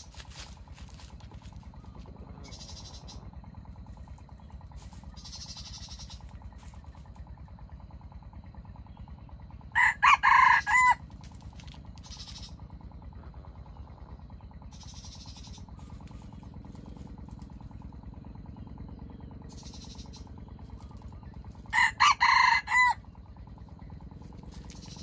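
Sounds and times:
rooster crowing: 9.7 - 11.0, 21.7 - 23.1.

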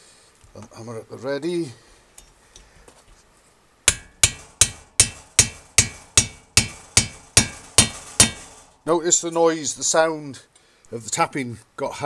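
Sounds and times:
hammer tapping metal: 3.9 - 8.8.

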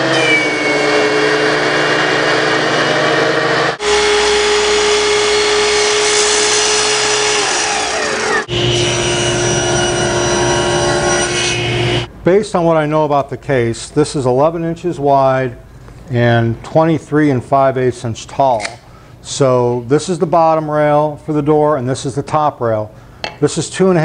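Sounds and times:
miter saw cutting: 0.0 - 12.1
table saw cutting: 0.0 - 12.1
thickness planer running: 0.0 - 12.1.

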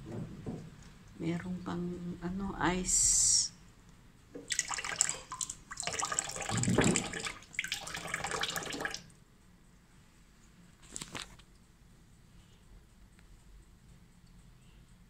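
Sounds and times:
tap water splashing into sink: 4.4 - 9.0.

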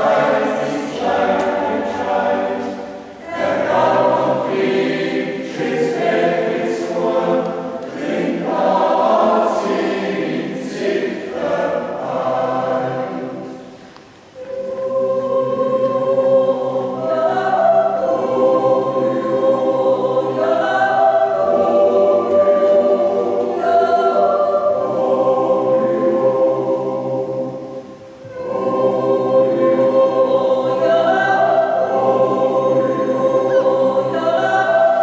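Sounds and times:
choir singing in harmony: 0.0 - 35.0.

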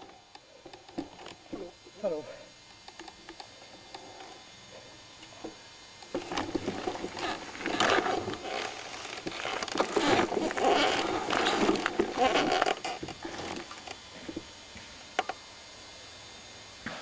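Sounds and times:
bike frame and chain rattling: 6.1 - 14.0
bike tyres on dirt trail: 6.2 - 13.9.

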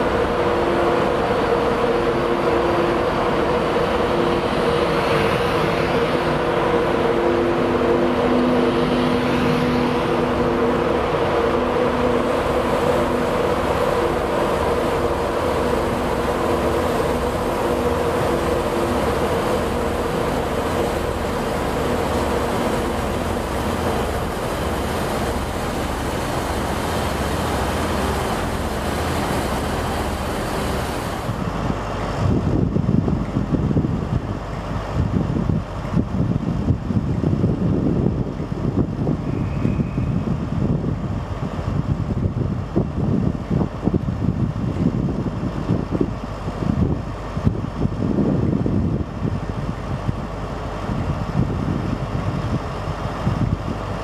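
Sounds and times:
locomotive electrics humming: 0.0 - 35.0
train rumble: 0.0 - 54.0
wind buffeting microphone: 0.0 - 54.0.

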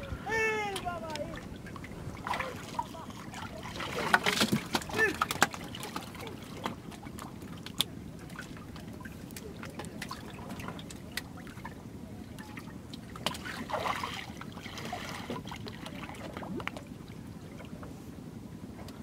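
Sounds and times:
water trickling and sloshing: 0.0 - 19.0
water splash: 1.1 - 6.8, 13.2 - 16.9.

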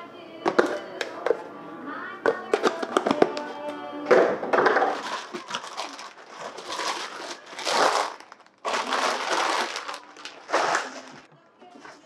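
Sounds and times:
plastic snack bags crinkling: 4.7 - 11.3.

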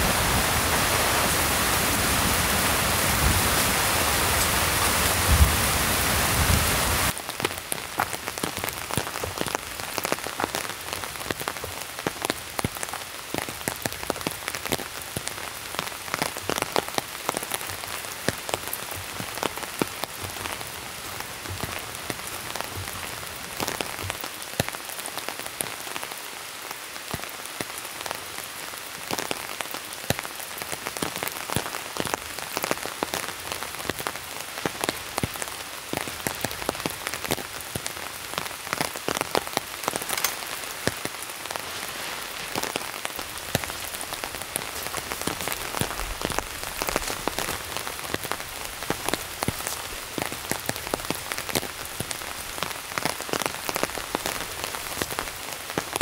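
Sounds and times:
steady rain patter: 0.0 - 56.0.

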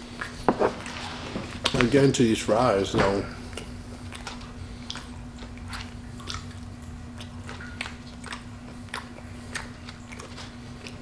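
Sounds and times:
steady low hum: 0.0 - 11.0
wet mouth clicks chewing: 3.5 - 11.0.

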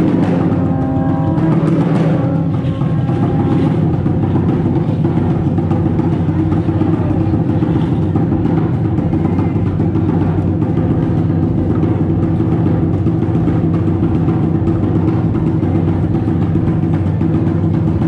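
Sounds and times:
drum-led music: 0.0 - 18.0.

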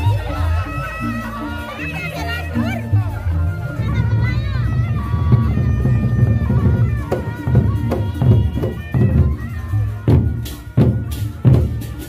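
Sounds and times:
barrel drums beating: 3.9 - 12.0.

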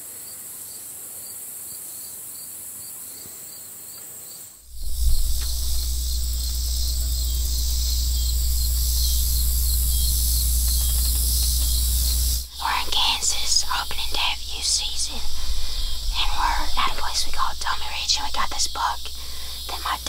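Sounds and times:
insects chirping: 0.2 - 20.0
low rumble: 4.6 - 20.0.

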